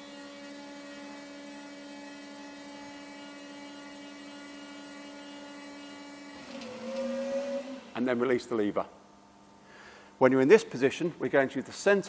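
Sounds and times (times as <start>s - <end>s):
hydraulic pump motor humming: 0.0s - 8.8s.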